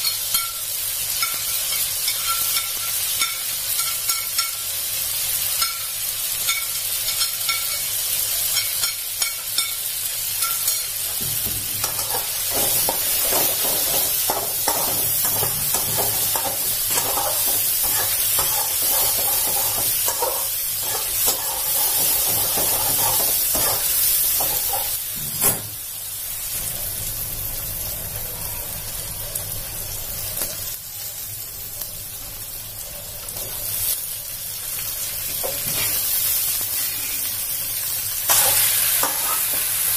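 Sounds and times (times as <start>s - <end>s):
chicken sizzling in oil: 0.0s - 39.9s
spatula scraping wok: 10.4s - 25.6s, 35.3s - 37.6s, 38.3s - 39.9s.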